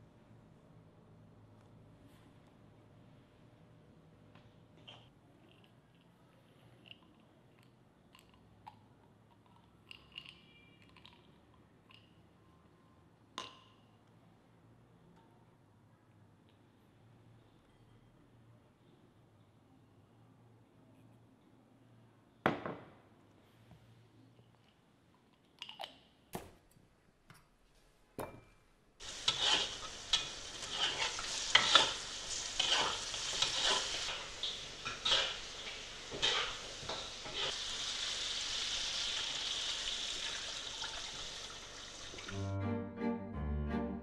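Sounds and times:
spatula scraping a wok: 29.0 - 37.7
meat sizzling in hot oil: 29.0 - 42.3.

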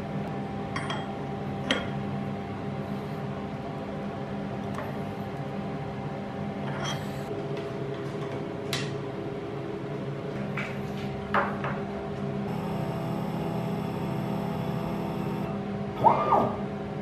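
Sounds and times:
electrical hum: 0.0 - 17.0
high steady whine: 12.5 - 17.0.

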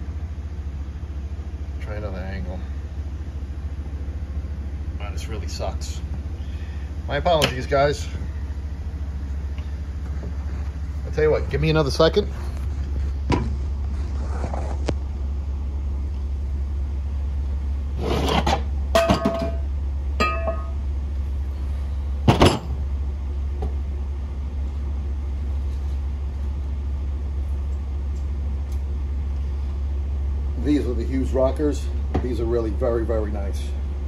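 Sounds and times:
steady low hum: 0.0 - 34.0
metal engine parts clinking: 18.2 - 20.8.

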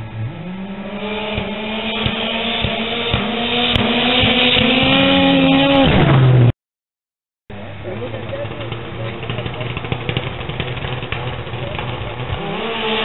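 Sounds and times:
snowmobile engine passing by: 0.0 - 6.5.

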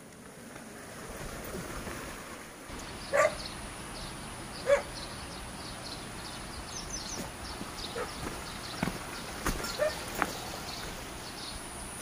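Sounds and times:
steady outdoor hiss: 0.0 - 12.0
sharp barking animal calls: 3.0 - 3.5, 4.6 - 5.1, 7.9 - 8.2, 9.6 - 10.1.

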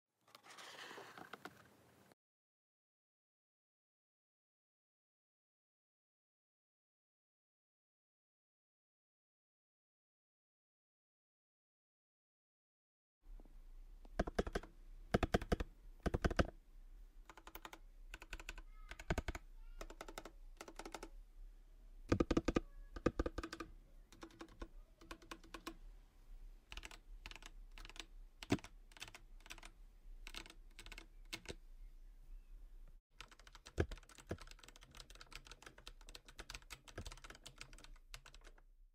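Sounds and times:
mechanical keyboard typing: 14.1 - 16.5, 17.3 - 21.1, 22.1 - 25.8, 26.7 - 31.6, 33.2 - 38.6.

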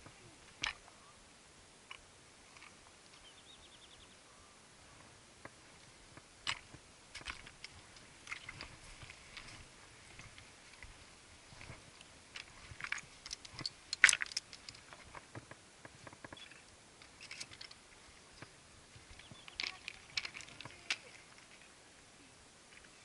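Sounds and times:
footsteps on rocky scree: 6.1 - 16.5.

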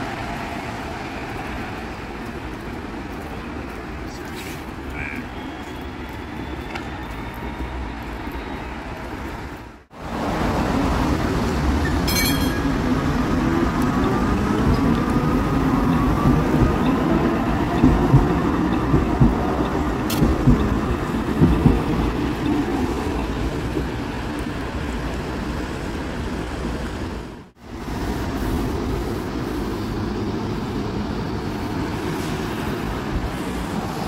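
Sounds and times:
distant rail and street noise: 0.0 - 34.0
light-rail car wheels rumbling: 0.0 - 34.0
sharp rail clacks: 15.9 - 22.2.

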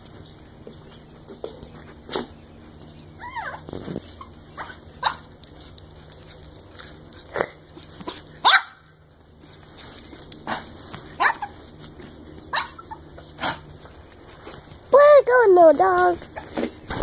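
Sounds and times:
dog barking and yipping: 3.2 - 5.3, 8.4 - 8.9, 10.5 - 11.7, 12.5 - 13.6.

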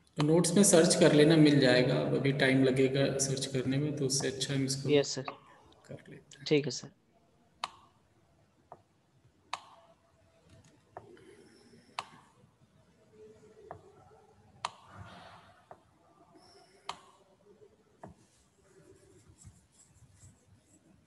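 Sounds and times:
faint scratching: 12.8 - 21.0.

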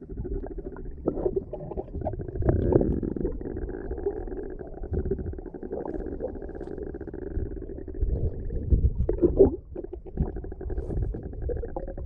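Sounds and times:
muffled underwater river gurgling: 0.0 - 12.0.

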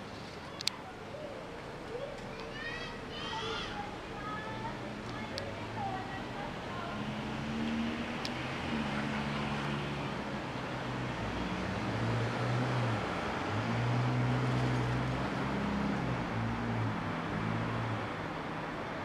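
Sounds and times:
street traffic hum: 0.0 - 19.0.

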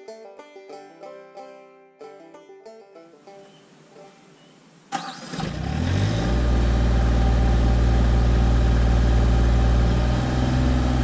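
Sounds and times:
diesel tractor engine starting: 4.9 - 11.0.

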